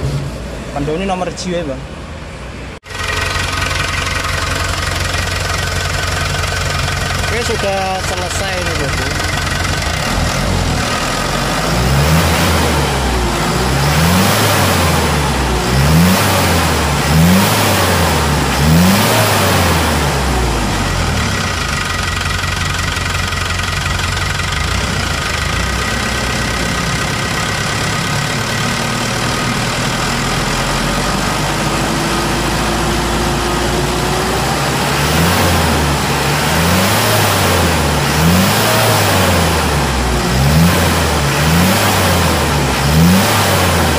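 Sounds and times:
diesel truck engine revving and idling: 0.0s - 43.9s.

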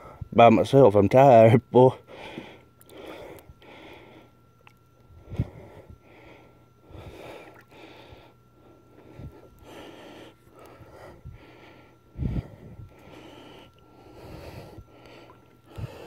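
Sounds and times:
man breathing hard: 2.1s - 4.4s, 5.2s - 16.0s.

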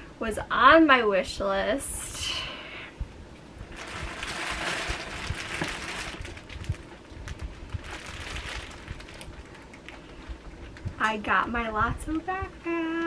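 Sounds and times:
plastic bag crinkling: 3.7s - 11.2s.

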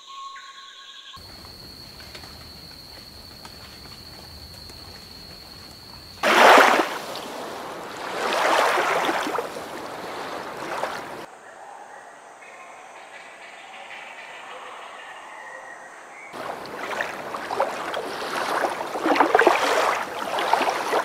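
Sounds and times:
heron calling: 16.4s - 21.0s.

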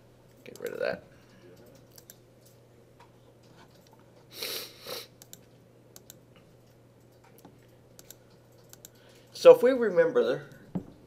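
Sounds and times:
computer mouse and keyboard clicks: 1.6s - 2.6s, 5.2s - 9.3s.

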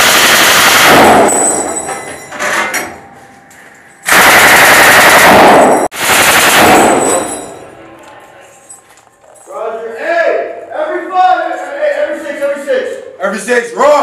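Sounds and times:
machine gun firing bursts: 0.0s - 1.5s, 4.1s - 7.3s.

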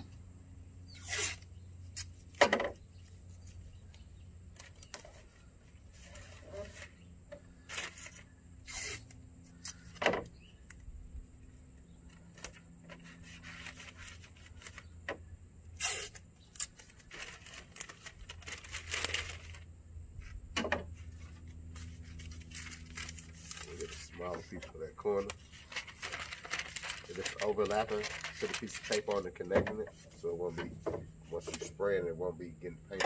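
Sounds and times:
tape ripping off roll: 0.9s - 2.6s, 7.7s - 9.8s, 15.8s - 19.6s
paper rustling: 4.6s - 7.0s, 7.6s - 9.0s, 12.1s - 14.9s, 15.8s - 19.7s, 21.1s - 30.1s.

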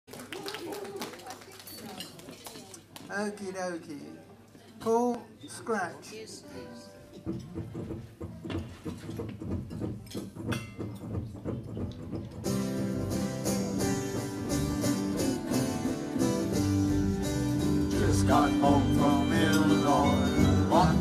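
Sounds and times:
acoustic string band playing: 12.2s - 21.0s.

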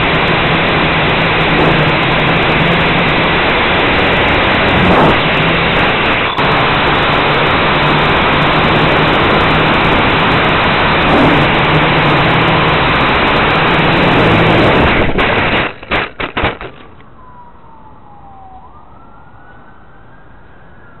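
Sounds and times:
quadcopter propellers rushing: 0.0s - 16.7s
drone crashing into grass: 13.7s - 16.9s.

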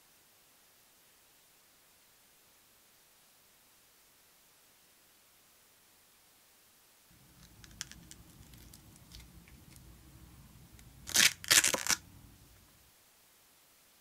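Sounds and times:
hook-and-loop disc ripping off: 7.3s - 9.8s, 10.8s - 12.2s.

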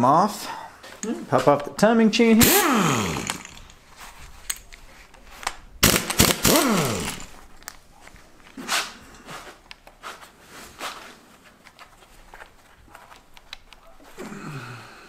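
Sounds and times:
air impact wrench burst: 2.4s - 3.7s, 5.8s - 7.4s
metal parts clinking: 2.4s - 3.8s, 5.8s - 7.8s.

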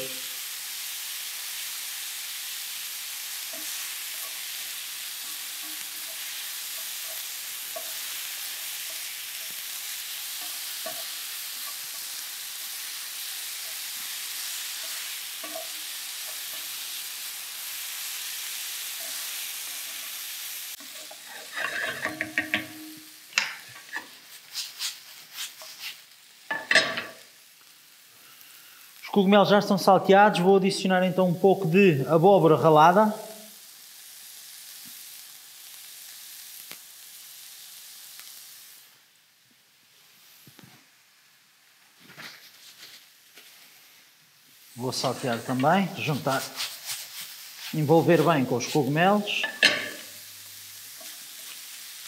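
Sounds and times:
mushrooms sizzling in a frying pan: 0.0s - 52.0s
pan clattering and knocking: 20.9s - 24.1s, 26.5s - 27.2s
wooden spoon stirring: 44.9s - 48.4s.

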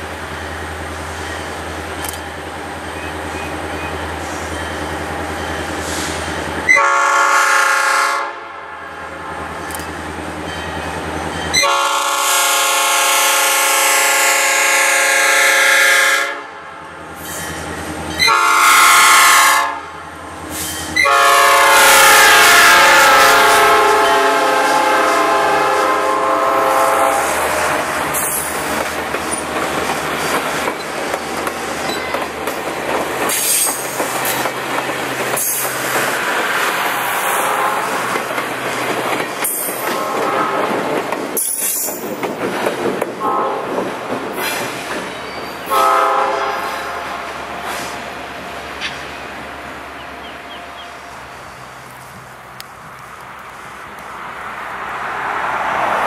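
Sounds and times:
locomotive air horn blasts: 6.7s - 8.9s, 11.5s - 16.7s, 18.2s - 19.9s, 21.0s - 28.4s, 37.2s - 38.1s, 39.9s - 40.8s, 43.2s - 43.8s, 45.6s - 47.3s
wheels clacking over rail joints: 27.6s - 45.8s.

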